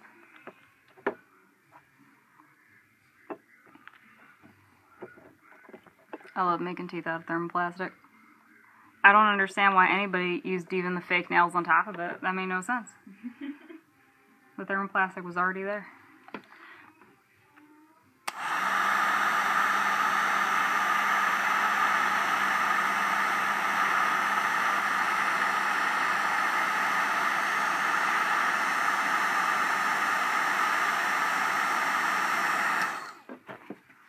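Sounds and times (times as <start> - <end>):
hair dryer blowing: 18.3 - 33.3.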